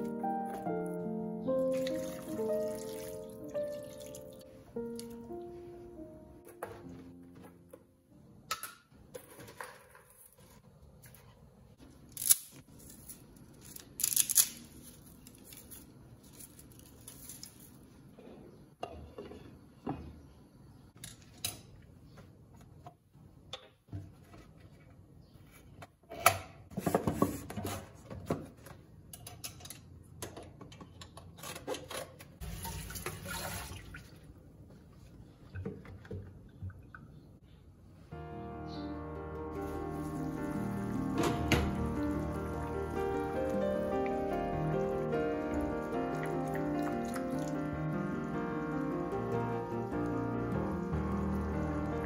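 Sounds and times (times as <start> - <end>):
water splashing: 1.7 - 4.4.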